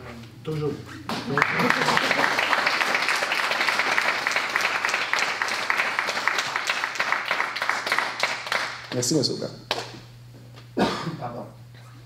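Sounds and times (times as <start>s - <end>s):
audience applauding: 1.1s - 9.1s.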